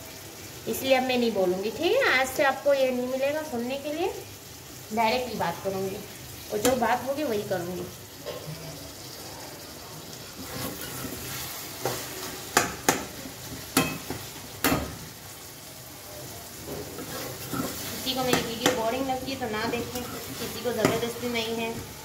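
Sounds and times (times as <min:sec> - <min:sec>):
vegetables sizzling in oil: 0:00.0 - 0:22.0
spoon knocking against pan: 0:11.8 - 0:15.0, 0:18.2 - 0:18.9, 0:20.8 - 0:21.1.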